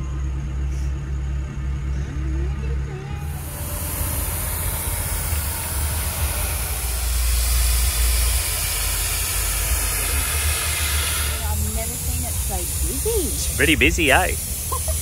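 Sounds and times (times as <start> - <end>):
low engine rumble: 0.0 - 15.0
air hissing from tyre valve: 3.2 - 15.0.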